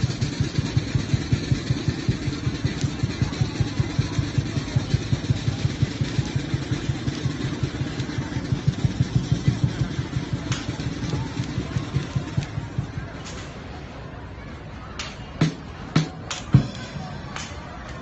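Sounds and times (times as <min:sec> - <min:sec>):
engine idling with low chug: 0:00.0 - 0:13.0.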